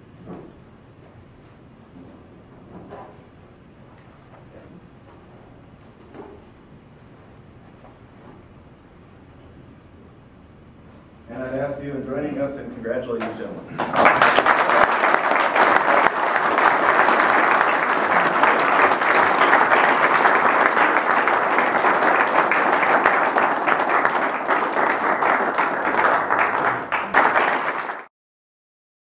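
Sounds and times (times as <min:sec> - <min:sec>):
crowd applauding: 0:13.8 - 0:28.1.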